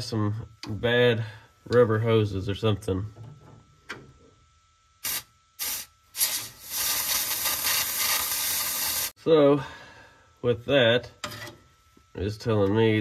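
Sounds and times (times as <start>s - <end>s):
compressed air hissing: 5.0s - 9.2s.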